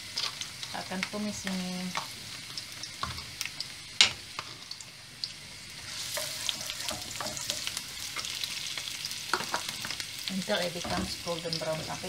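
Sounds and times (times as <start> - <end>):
onion and garlic sizzling in pan: 0.0 - 12.0
wooden spoon scraping pan: 6.0 - 7.8.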